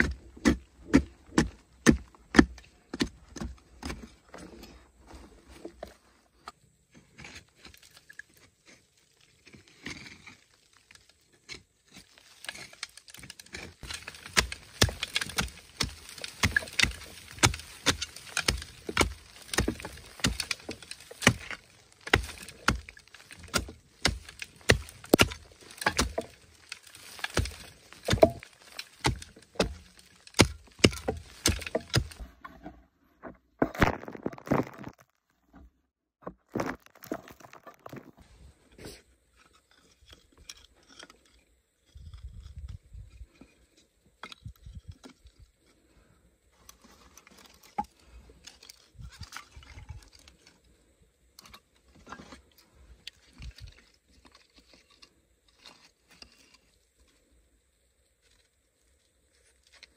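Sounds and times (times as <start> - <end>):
digging tool striking hard earth: 0.0 - 4.5, 12.5 - 32.7, 33.5 - 35.2, 36.2 - 38.2.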